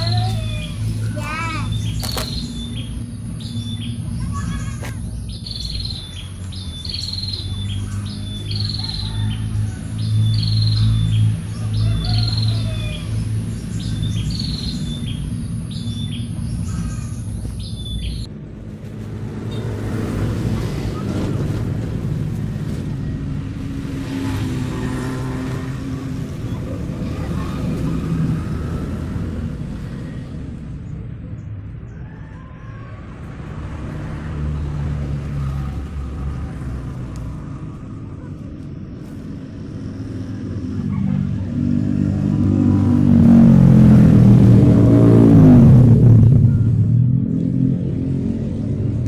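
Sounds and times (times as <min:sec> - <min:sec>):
bird chirping: 0:00.0 - 0:18.3
low rumble of traffic: 0:00.0 - 0:49.0.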